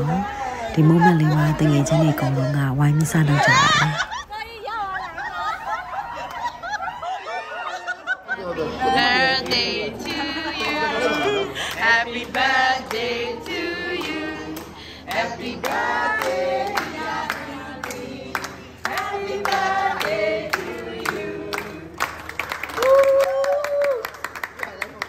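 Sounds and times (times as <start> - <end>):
group singing birthday song: 0.0 - 22.6
hand claps: 9.4 - 25.0.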